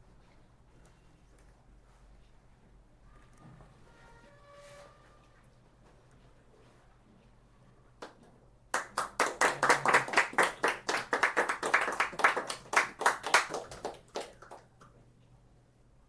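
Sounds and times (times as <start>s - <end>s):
group of people clapping: 8.0s - 14.7s.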